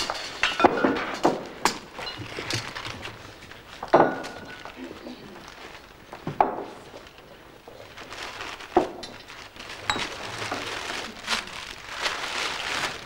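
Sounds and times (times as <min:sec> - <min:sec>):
glass bottles knocking and clinking: 0:00.0 - 0:03.0, 0:03.8 - 0:04.8, 0:08.8 - 0:10.2.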